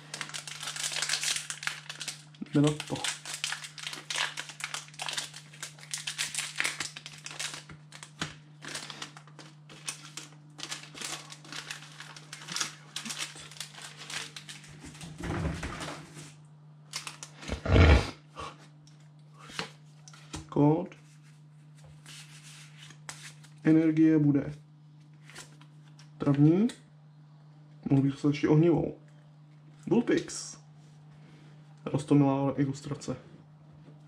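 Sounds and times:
foil wrapper crinkling and tearing: 0.0s - 15.0s, 16.9s - 17.5s
faint low hum: 0.0s - 34.0s.

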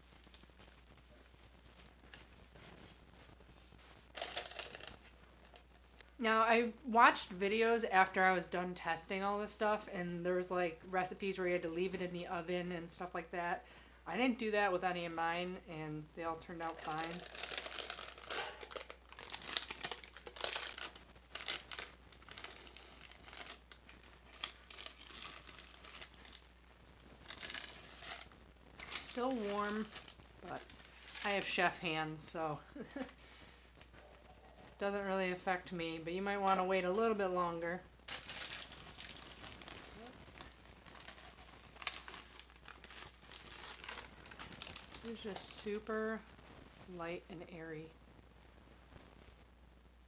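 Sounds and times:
parchment paper crinkling: 0.0s - 6.1s, 16.3s - 46.9s.

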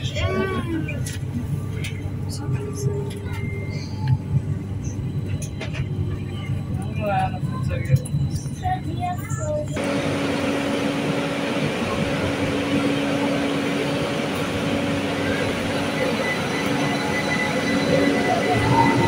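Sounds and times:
rumble of train wheels on rails: 0.0s - 19.0s
electric traction hum: 9.7s - 19.0s.

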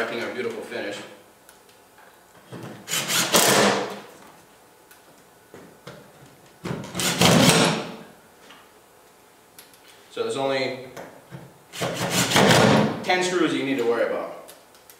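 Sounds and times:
cordless drill driving screws: 2.9s - 3.8s.

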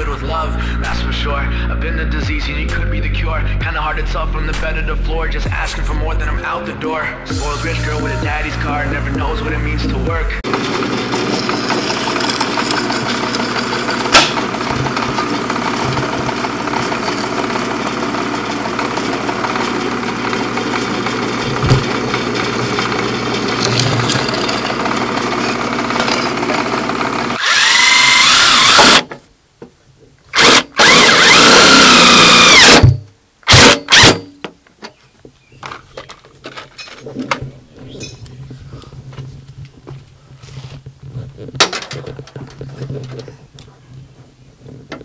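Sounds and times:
drill press boring metal: 10.4s - 29.1s, 30.3s - 34.3s
handheld power drill bursts: 10.4s - 29.1s, 30.3s - 34.3s.

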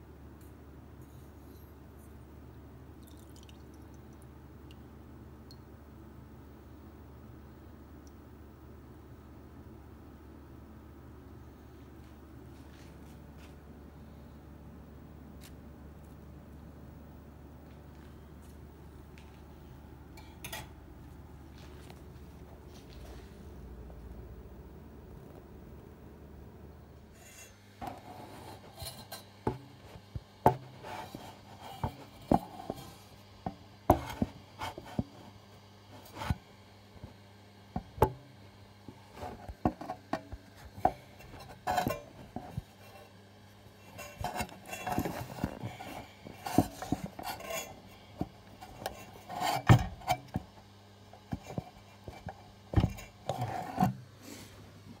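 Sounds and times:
steady low hum: 0.0s - 55.0s
handling rubbing and knocks: 27.2s - 35.4s, 39.1s - 50.6s, 51.2s - 54.4s.

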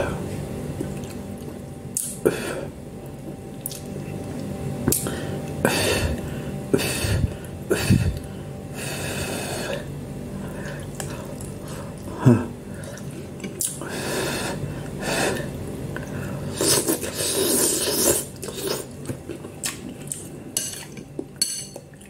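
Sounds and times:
person slurping noodles: 16.5s - 19.0s.

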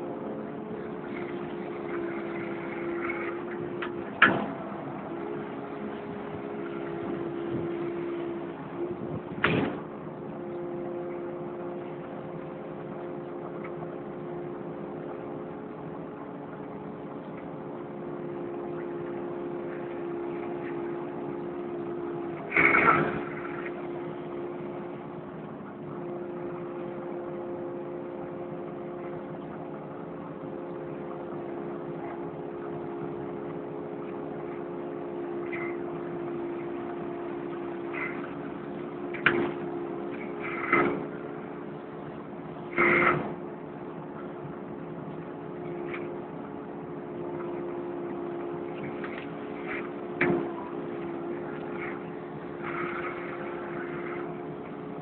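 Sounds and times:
excavator diesel engine running: 0.0s - 55.0s
loud machine clunk: 4.1s - 4.8s, 9.4s - 9.9s.

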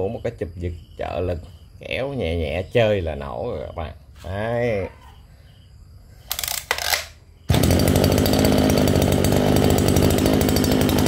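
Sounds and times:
brushcutter engine running: 6.3s - 11.0s
recoil starter rasp: 6.3s - 11.0s.

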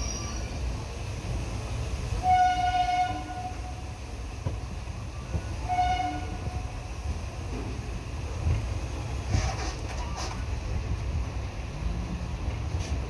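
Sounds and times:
moving train rumble: 0.0s - 13.0s
train horn blasts: 2.2s - 3.9s, 5.6s - 6.7s.

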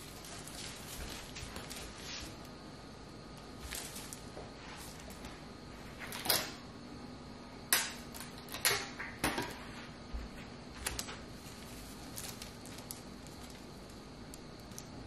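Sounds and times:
foil decorations rustling: 0.0s - 2.5s, 3.4s - 5.4s, 10.8s - 15.0s.

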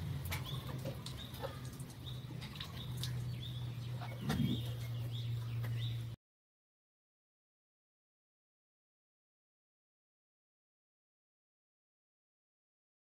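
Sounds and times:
small birds chirping: 0.0s - 6.2s
steady low hum: 0.0s - 6.2s.

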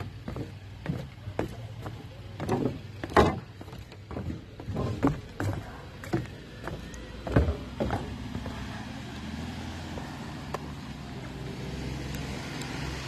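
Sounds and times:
sharp thumps: 0.0s - 6.3s
road traffic hum: 0.0s - 13.0s.

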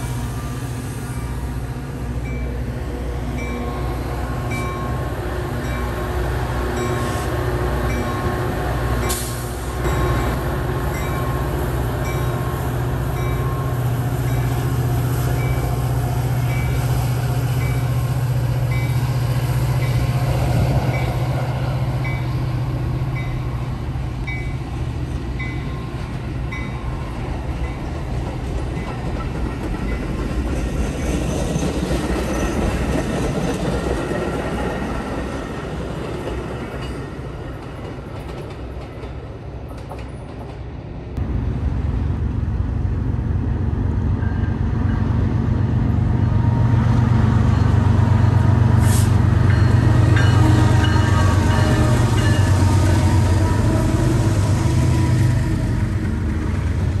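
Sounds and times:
train wheels on rails: 0.0s - 57.0s
locomotive engine drone: 41.0s - 57.0s.

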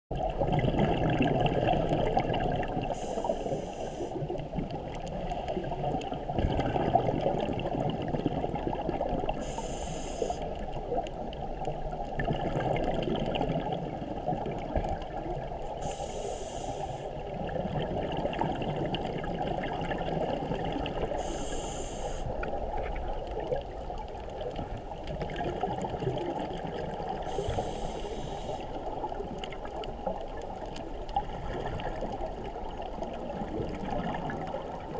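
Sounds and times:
low rumble of moving water: 0.1s - 34.9s
scuba regulator bubbles hissing: 0.4s - 4.4s, 6.4s - 10.5s, 15.7s - 22.8s, 25.3s - 29.2s.

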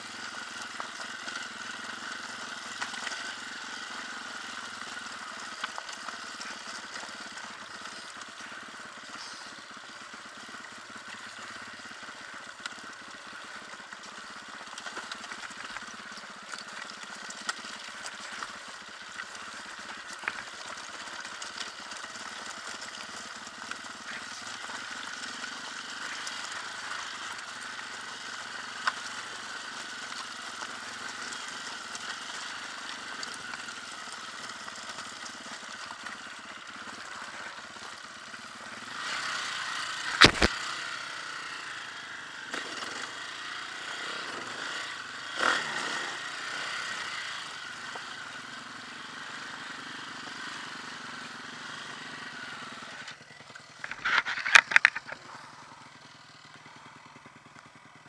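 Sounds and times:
dirt bike engine running: 0.0s - 58.0s
knocks over stones: 40.1s - 40.6s, 53.8s - 55.3s.

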